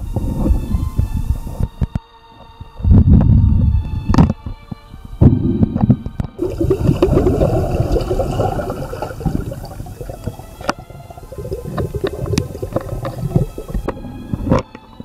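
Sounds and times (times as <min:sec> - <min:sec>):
sharp knocks underwater: 0:05.2 - 0:14.8
water sloshing and bubbling: 0:05.3 - 0:15.0.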